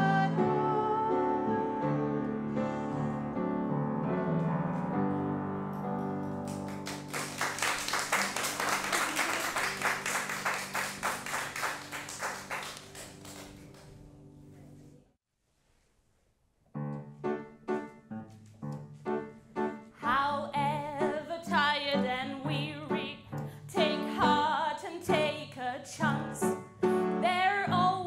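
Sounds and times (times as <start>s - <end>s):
piano chords: 0.0s - 15.0s, 16.7s - 28.0s
people clapping: 6.2s - 14.0s.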